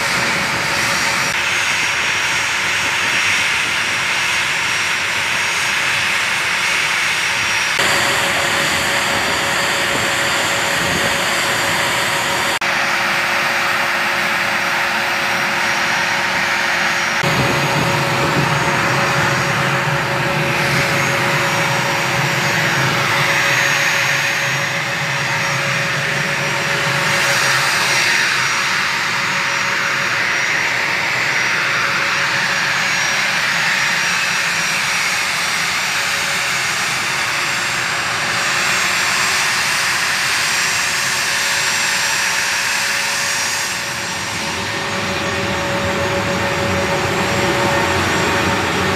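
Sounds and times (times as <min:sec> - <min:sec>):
jet engines running: 0:00.0 - 0:48.9
low rumble: 0:17.2 - 0:28.0.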